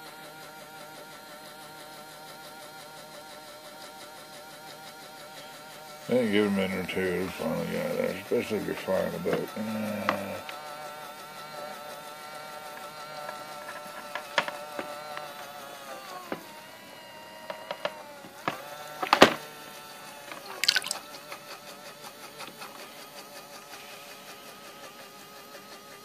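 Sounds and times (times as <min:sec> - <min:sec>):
electric pump motor whining: 0:04.9 - 0:20.5
water trickling and dripping: 0:20.5 - 0:21.1.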